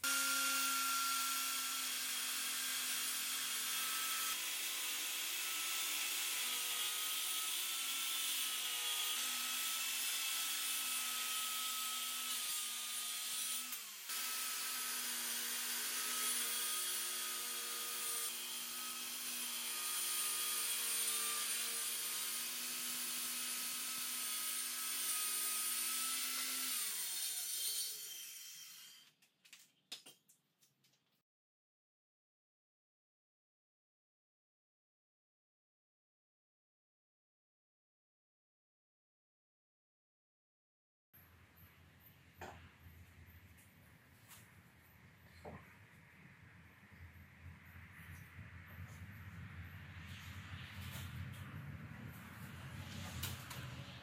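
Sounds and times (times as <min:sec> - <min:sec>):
circular saw cutting wood: 0:00.0 - 0:29.1.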